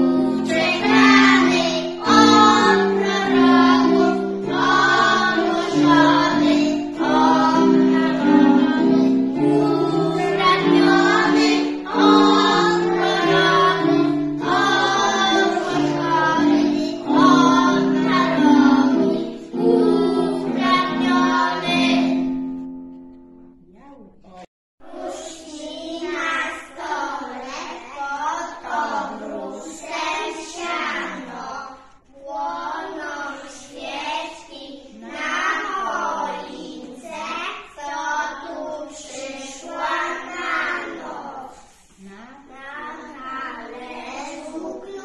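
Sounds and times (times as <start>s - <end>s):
children singing in unison: 0.0s - 22.5s, 24.8s - 42.0s, 42.6s - 45.0s
musical accompaniment: 0.0s - 23.8s.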